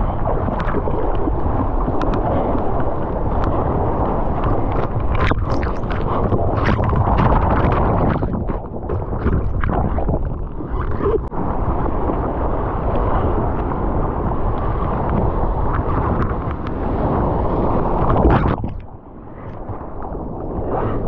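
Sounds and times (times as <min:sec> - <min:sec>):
arm paddling strokes in water: 0:00.0 - 0:12.3
seawater rushing and splashing: 0:00.0 - 0:21.0
wind buffeting microphone: 0:00.0 - 0:21.0.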